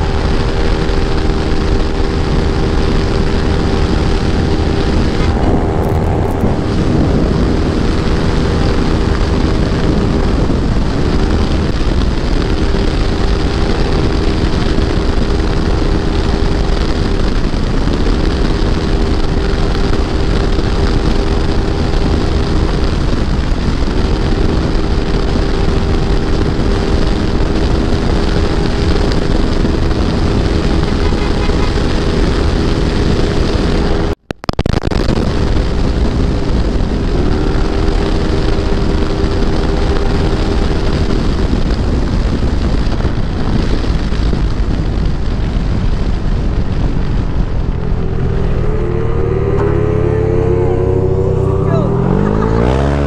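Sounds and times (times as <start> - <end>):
scooter engine running: 0.0 - 34.3, 35.4 - 53.0
wind rushing over microphone: 0.0 - 53.0.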